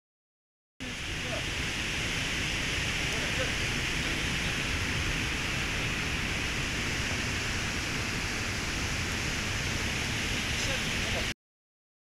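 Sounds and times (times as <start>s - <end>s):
steady rushing hiss: 0.8s - 11.3s.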